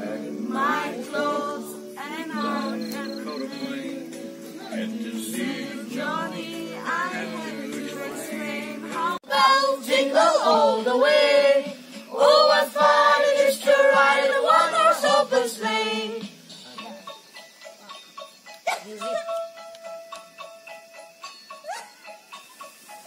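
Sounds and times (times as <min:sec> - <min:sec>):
children singing: 0:00.0 - 0:16.3
music with held notes: 0:00.0 - 0:23.0.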